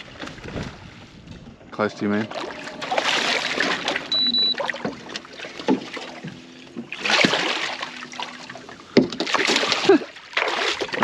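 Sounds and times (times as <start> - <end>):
water splashing against metal boat: 0.0 - 11.0.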